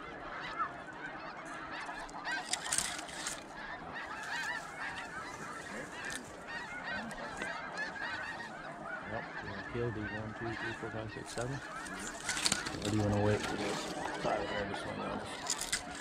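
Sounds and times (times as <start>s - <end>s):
geese honking: 0.0s - 16.0s
brief rustling: 1.9s - 8.5s, 10.6s - 14.6s, 15.2s - 16.0s.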